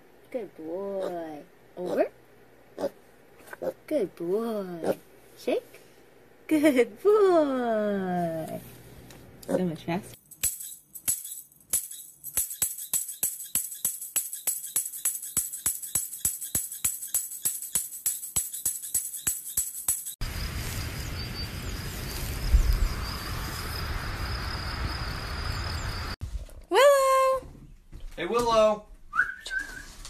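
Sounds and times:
metallic jingling strikes: 0:10.2 - 0:20.2
faint high whine: 0:20.2 - 0:26.2
outdoor hiss: 0:20.2 - 0:26.2.

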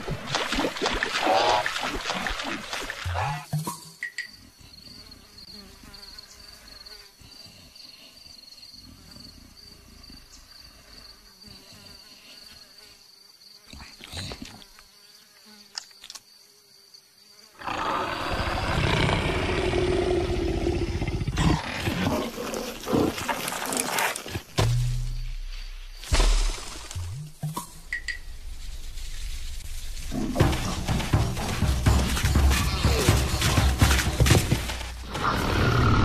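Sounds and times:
faint insect drone: 0:01.0 - 0:36.0
rough drawn-out animal growl: 0:17.6 - 0:24.3, 0:32.4 - 0:36.0.

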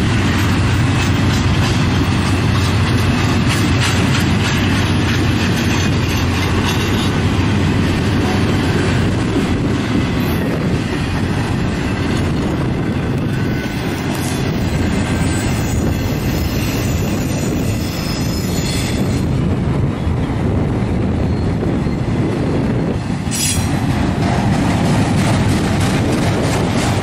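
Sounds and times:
freight train wheels on rails: 0:00.0 - 0:27.0.

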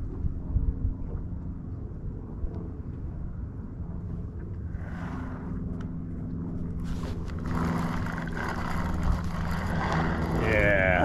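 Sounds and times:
small motor humming: 0:06.3 - 0:11.0.

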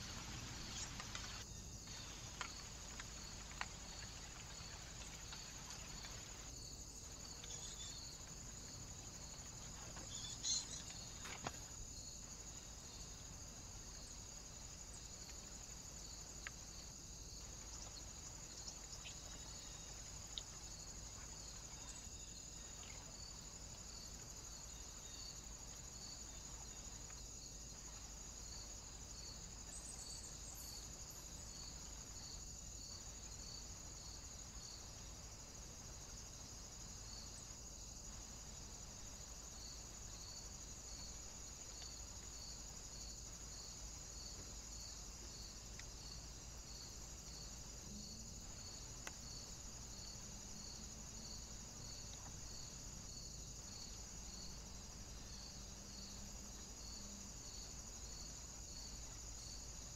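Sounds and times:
crickets chirping: 0:00.0 - 0:59.9.

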